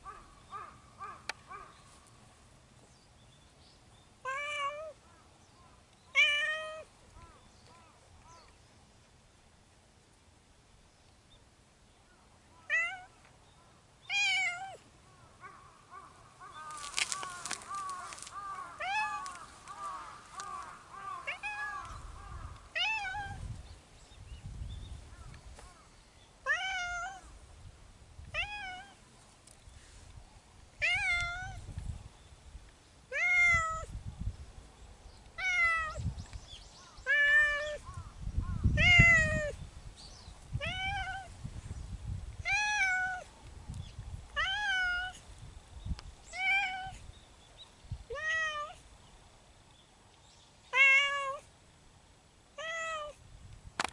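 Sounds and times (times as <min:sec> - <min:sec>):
cat meowing: 0:12.7 - 0:13.1, 0:14.1 - 0:14.8, 0:18.6 - 0:19.4, 0:21.2 - 0:21.9, 0:26.4 - 0:27.2, 0:30.8 - 0:31.6, 0:33.1 - 0:33.9, 0:35.4 - 0:36.0, 0:38.8 - 0:39.5, 0:42.5 - 0:43.2, 0:44.4 - 0:45.2, 0:50.7 - 0:51.4.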